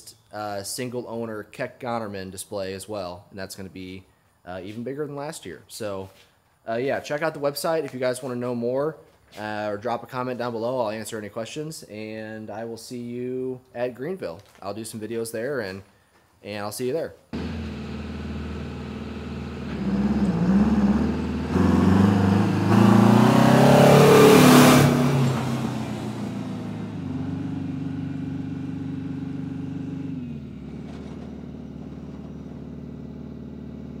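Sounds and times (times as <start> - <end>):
tractor engine revving: 17.4 - 34.0.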